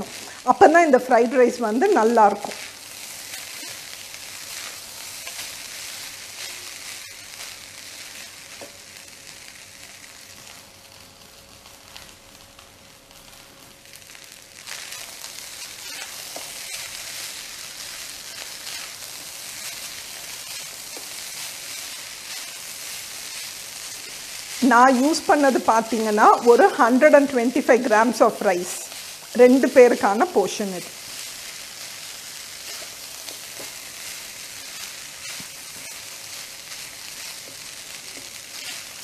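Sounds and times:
rice sizzling in a wok: 0.0s - 39.0s
spatula scraping a wok: 14.6s - 25.8s, 30.9s - 39.0s.

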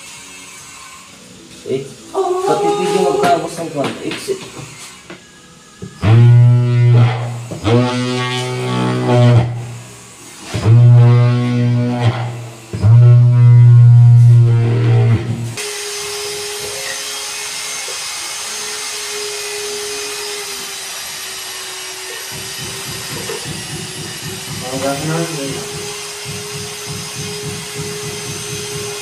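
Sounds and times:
small electric tool motor humming: 0.0s - 3.2s, 4.5s - 29.0s
guitar and bass music: 6.0s - 9.8s, 10.5s - 15.6s.

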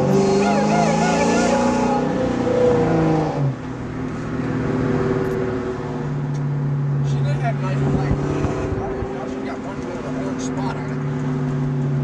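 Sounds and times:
car road and engine noise: 0.0s - 12.0s
held pitched notes: 0.2s - 2.0s
wavering voice-like line: 0.4s - 2.0s.

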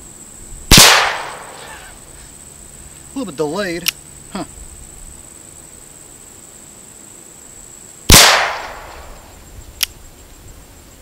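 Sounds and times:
revolver gunshot: 0.7s - 1.7s, 8.1s - 9.2s
small click: 3.8s - 4.0s, 9.8s - 10.0s.

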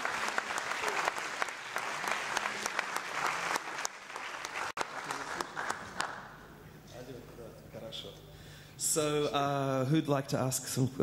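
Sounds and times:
audience applauding: 0.0s - 6.4s.

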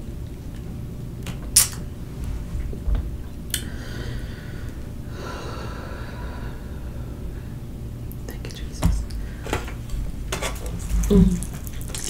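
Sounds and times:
quiet breathing: 3.6s - 9.9s.

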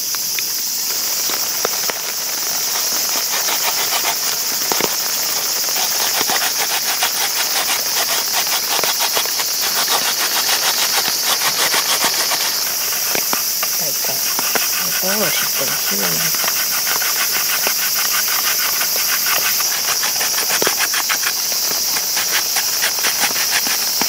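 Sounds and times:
cicadas and insects shrilling: 0.0s - 24.0s
radish scraping on plastic grater: 2.8s - 24.0s.

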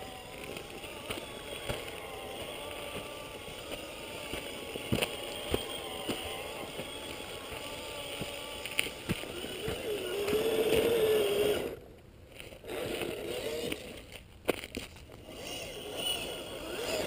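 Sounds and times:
electric motor and gears whining: 0.0s - 17.0s.

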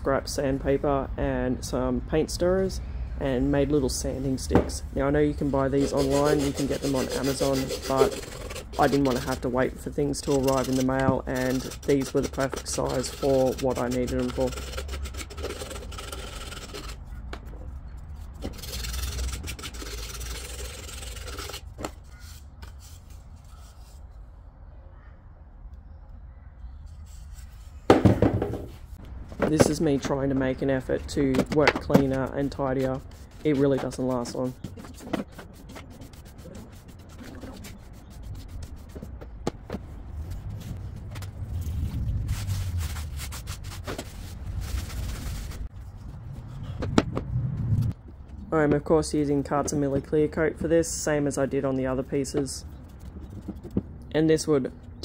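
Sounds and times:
brush sweeping sawdust on wood: 5.0s - 9.5s
sandpaper rasping on wood: 5.3s - 17.0s, 18.4s - 21.6s, 32.5s - 39.2s.

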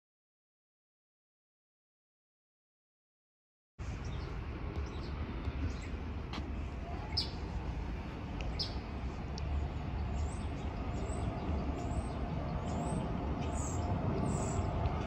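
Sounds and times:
jet airliner rumbling overhead: 3.9s - 15.0s
small bird chirping: 7.0s - 7.4s, 8.4s - 14.8s.

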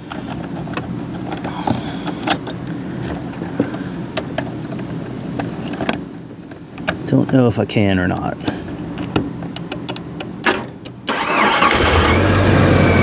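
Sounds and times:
starter cranking engine: 11.0s - 13.0s.

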